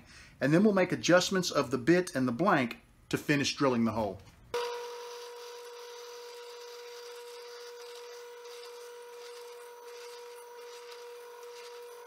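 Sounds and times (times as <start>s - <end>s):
drill bit rasping wood: 4.6s - 12.0s.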